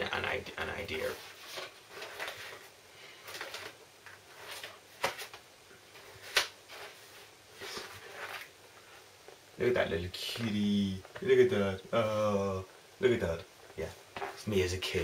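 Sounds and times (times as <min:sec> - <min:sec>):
paper pages rustling: 0:00.9 - 0:09.0.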